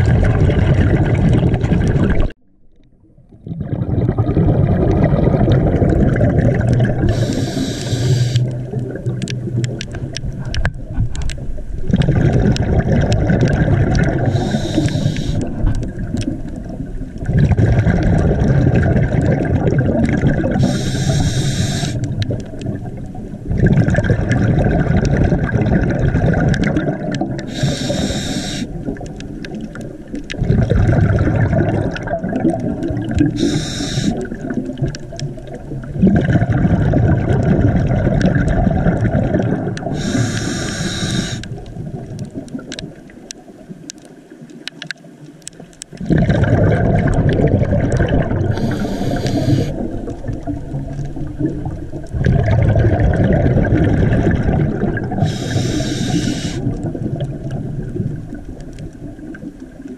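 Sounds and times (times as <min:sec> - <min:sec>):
exhaled bubbles rushing: 0:00.0 - 0:02.4, 0:03.0 - 0:43.7, 0:45.6 - 0:59.9
diver inhaling through regulator: 0:07.0 - 0:08.5, 0:14.2 - 0:15.6, 0:20.6 - 0:22.1, 0:27.5 - 0:28.8, 0:33.3 - 0:34.4, 0:39.9 - 0:41.6, 0:48.5 - 0:50.0, 0:55.2 - 0:56.7.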